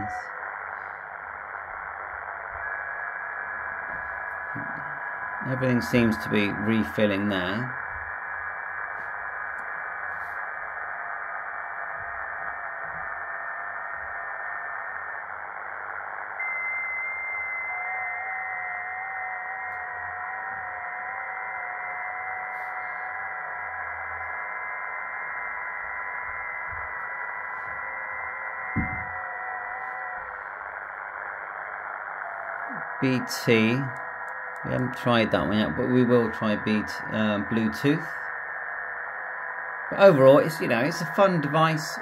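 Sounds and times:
radio band hiss: 0.0s - 42.0s
steady digital radio tones: 0.0s - 42.0s.

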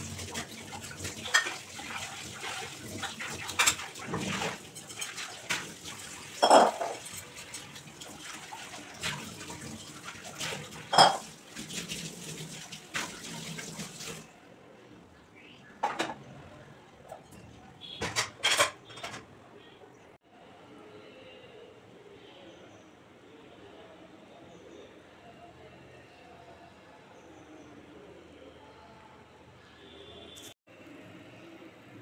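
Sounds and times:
dishes and utensils clanking: 0.4s - 2.0s, 2.9s - 7.5s, 10.4s - 11.4s, 15.8s - 16.3s, 17.0s - 19.4s.

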